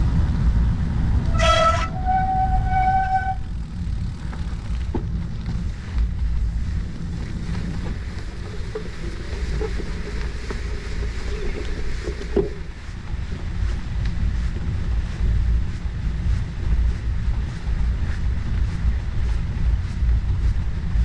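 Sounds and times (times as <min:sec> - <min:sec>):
bike tyre and road rumble: 0:00.0 - 0:21.0
wind buffeting microphone: 0:00.0 - 0:21.0
faint wavering squeaks: 0:01.4 - 0:03.5.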